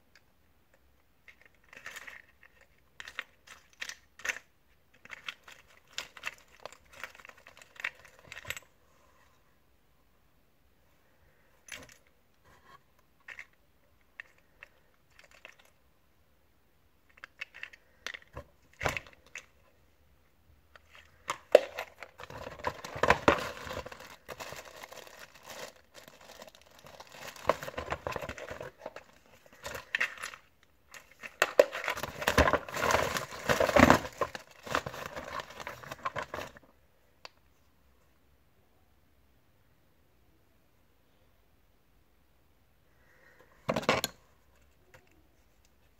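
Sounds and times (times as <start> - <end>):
plastic bag crinkling: 21.0 - 36.6.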